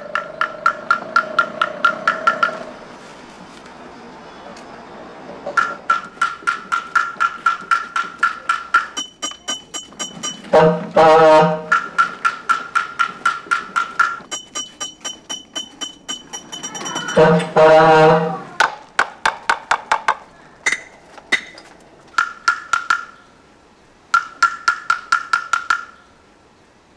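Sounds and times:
stick tapping wooden block: 0:00.0 - 0:02.6, 0:05.6 - 0:17.4, 0:18.6 - 0:23.2, 0:24.1 - 0:26.0
high metallic clinks: 0:05.8 - 0:11.0, 0:13.9 - 0:17.5
brassy horn blast: 0:10.5 - 0:11.8, 0:17.2 - 0:18.6.

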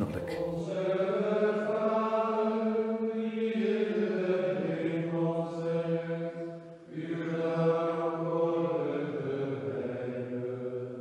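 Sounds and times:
man chanting: 0:00.0 - 0:00.8.

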